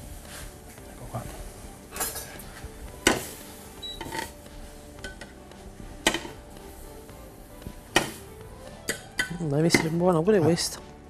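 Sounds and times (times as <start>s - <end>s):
metal utensil clinking on pan: 1.9s - 2.4s, 8.9s - 10.0s.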